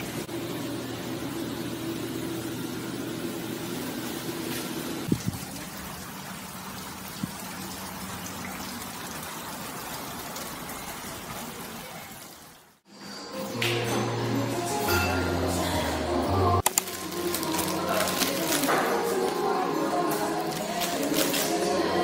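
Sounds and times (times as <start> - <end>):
fountain water rushing: 5.0 - 12.8.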